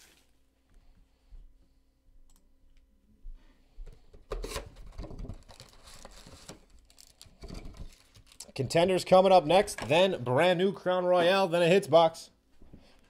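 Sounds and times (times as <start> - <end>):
foil card packs rustling: 4.4 - 8.8.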